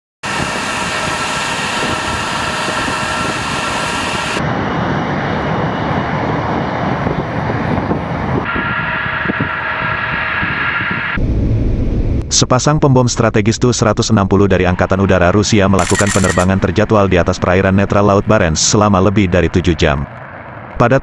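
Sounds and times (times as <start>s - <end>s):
high whining tones: 0.2s - 6.0s, 8.3s - 12.4s
jet engines roaring: 0.2s - 12.6s, 13.7s - 21.0s.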